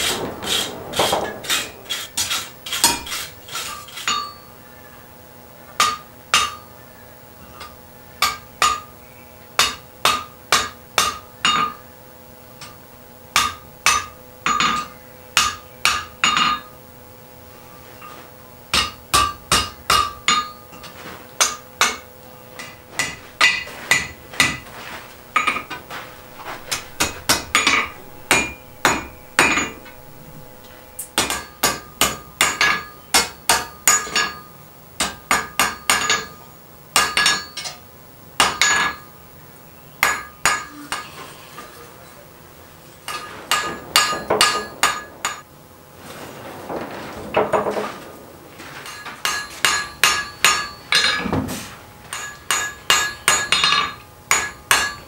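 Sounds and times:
hammer striking iron on anvil: 0.0 - 4.5, 5.8 - 6.7, 7.5 - 9.0, 9.6 - 11.8, 12.6 - 16.7, 18.7 - 24.6, 25.4 - 37.8, 38.4 - 39.1, 40.0 - 41.1, 43.1 - 45.5, 48.8 - 51.2, 52.1 - 55.0.

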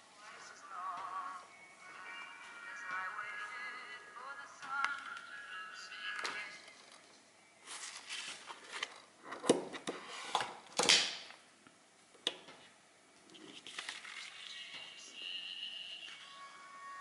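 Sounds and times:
faint music from paper speaker: 0.0 - 10.5, 13.4 - 17.0
paper crackling: 7.6 - 9.0, 13.5 - 14.6.

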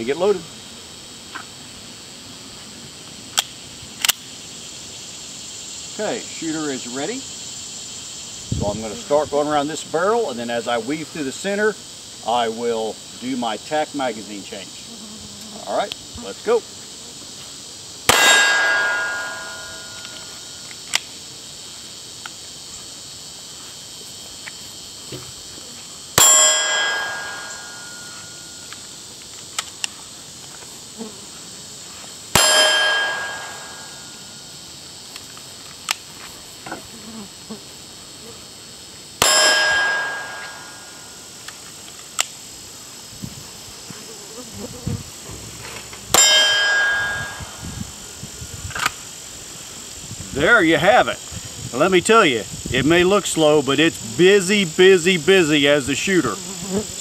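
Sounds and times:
pistol shots: 18.1 - 19.5
steel target ringing: 18.1 - 20.5, 26.2 - 28.4, 32.4 - 34.2, 39.2 - 41.1, 46.1 - 47.6.

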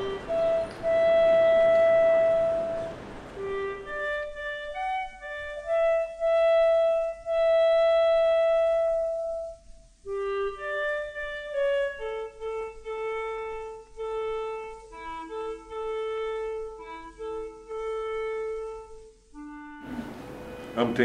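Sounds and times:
background hiss: 0.0 - 21.0
slow solo clarinet melody: 0.0 - 21.0.

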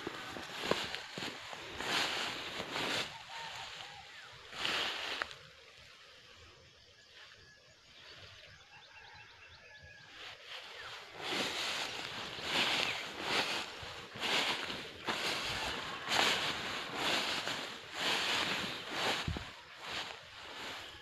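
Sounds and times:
dry grass crunching underfoot: 0.0 - 5.6, 10.1 - 21.0.

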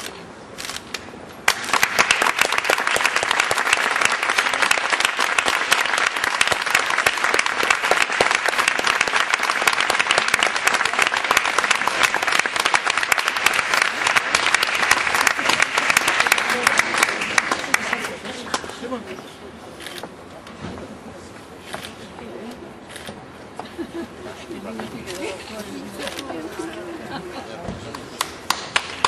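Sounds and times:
audience applauding: 1.4 - 18.8, 27.8 - 29.0.

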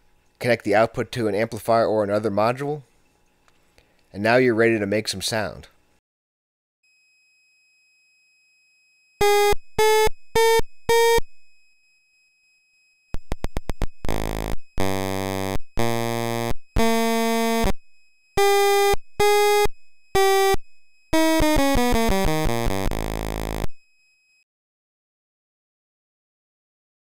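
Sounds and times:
synth notes: 9.2 - 11.4, 13.2 - 17.8, 18.4 - 23.8.

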